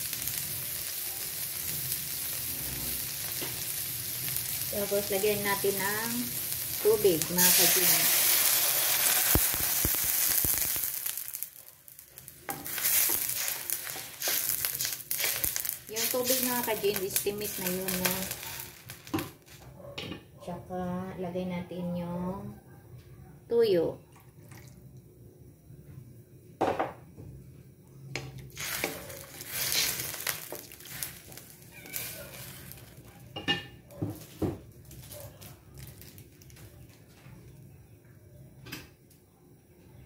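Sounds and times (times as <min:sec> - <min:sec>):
water sizzling in a hot wok: 0:00.0 - 0:19.6, 0:28.3 - 0:37.1
wooden spatula scraping a wok: 0:12.5 - 0:19.2, 0:28.6 - 0:32.9.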